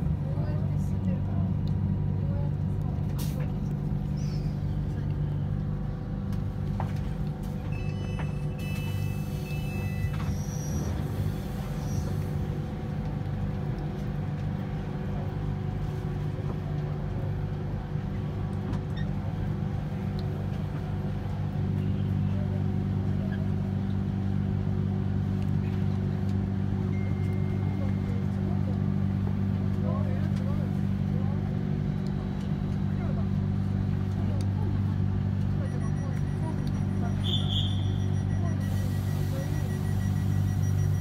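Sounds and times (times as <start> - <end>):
train hum inside carriage: 0.0 - 41.0
high electronic beeps: 35.6 - 41.0.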